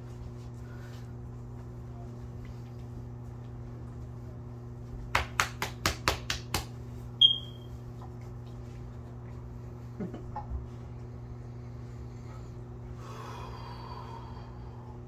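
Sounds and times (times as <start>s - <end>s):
steady low hum: 0.0s - 15.0s
sharp hand slaps: 5.1s - 6.8s
short high-pitched chirp: 7.2s - 7.7s.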